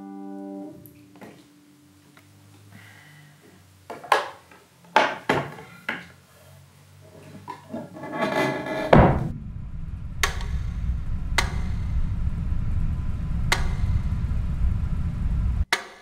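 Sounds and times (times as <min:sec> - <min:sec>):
piano fallboard closing thump: 0:08.9 - 0:09.4
low steady rumble: 0:08.9 - 0:15.7.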